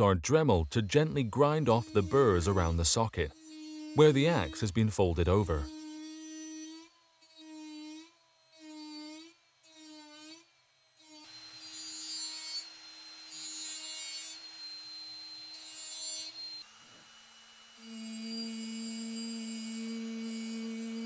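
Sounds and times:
rotary tool grinding metal: 0.0 - 21.0.

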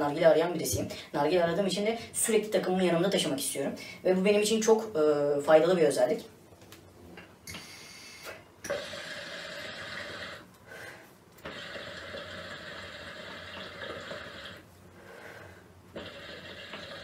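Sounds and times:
water bubbling in hookah: 8.6 - 10.5, 11.4 - 14.7, 15.9 - 17.0.

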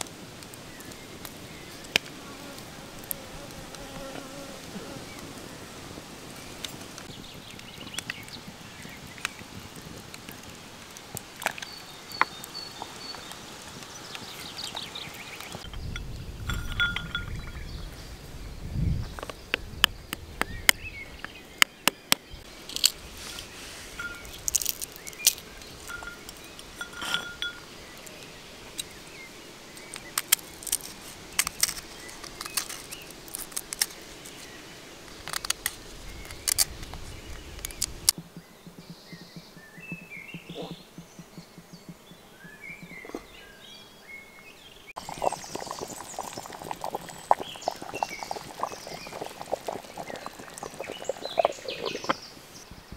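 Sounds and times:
birds chirping: 3.1 - 10.8, 11.5 - 33.3, 33.9 - 52.9
sharp clicks and clinks: 15.6 - 17.6, 25.9 - 27.6.

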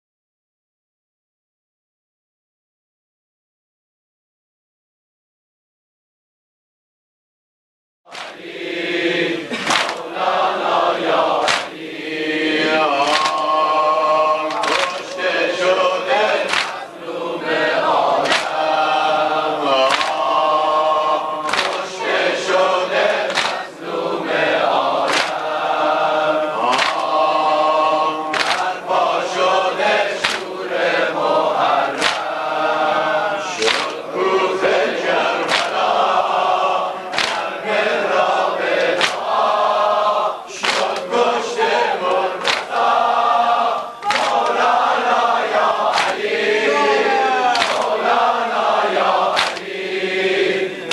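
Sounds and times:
hands slapping bare chests: 8.1 - 8.4, 9.5 - 10.1, 11.4 - 11.8, 13.0 - 13.5, 14.5 - 15.3, 16.4 - 16.9, 18.2 - 18.7, 19.9 - 20.3, 21.4 - 22.0, 23.1 - 23.7, 25.0 - 25.5, 26.7 - 27.2, 28.3 - 28.8, 30.2 - 30.5, 32.0 - 32.3, 33.6 - 34.0, 35.4 - 35.9, 37.1 - 37.6, 38.8 - 39.4, 40.6 - 41.1, 42.4 - 42.9, 44.0 - 44.6, 45.9 - 46.2, 47.5 - 48.0, 49.3 - 49.7
crowd of men chanting: 8.1 - 50.9.

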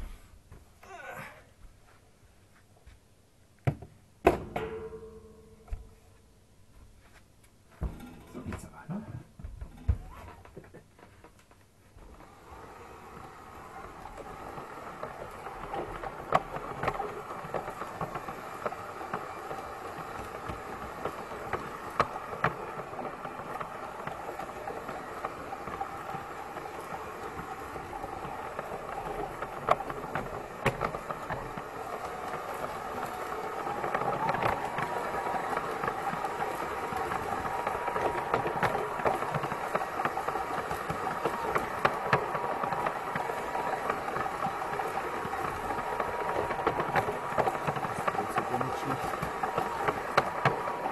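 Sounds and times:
wheels clicking on track: 9.7 - 50.9
steady whine: 11.9 - 50.9
model locomotive running noise: 12.0 - 50.9.

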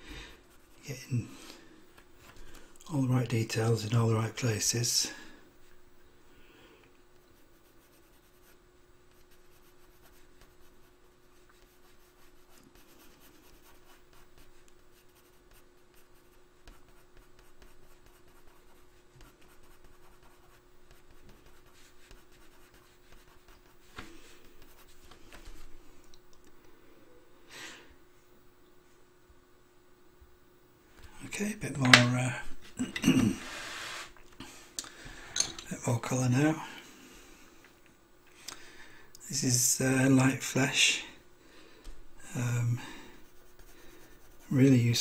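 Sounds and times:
pencil scratching on paper: 0.4 - 0.9, 7.4 - 25.0, 43.2 - 45.0.

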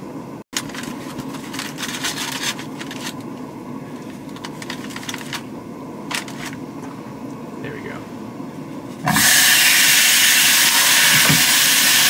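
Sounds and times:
steady low hum: 0.0 - 10.6
paper crinkling and rustling: 0.6 - 5.5, 6.1 - 6.6.

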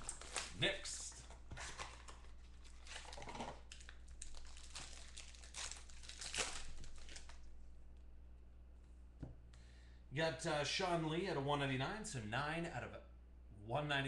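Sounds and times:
plastic wrapper crinkling: 0.0 - 7.5.

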